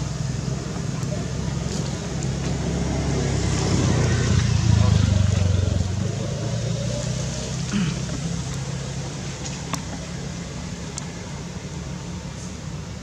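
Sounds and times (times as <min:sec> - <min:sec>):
engine humming: 0:00.0 - 0:13.0
faint clicks: 0:10.8 - 0:11.1.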